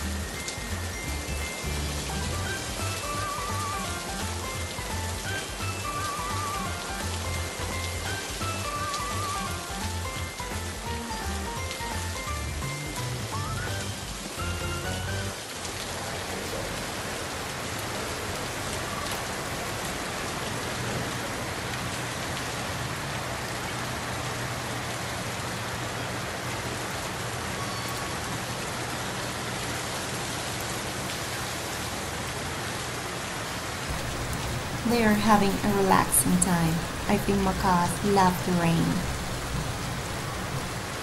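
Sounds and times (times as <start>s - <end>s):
background music: 0.0s - 15.5s, 33.9s - 41.0s
heavy rain pouring: 0.0s - 41.0s.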